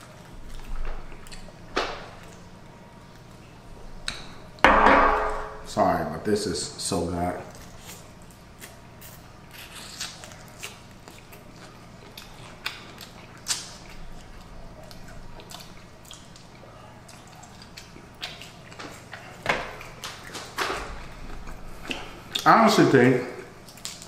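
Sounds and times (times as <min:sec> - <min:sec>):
person chewing crunchy food: 0:00.1 - 0:02.4, 0:07.5 - 0:20.5.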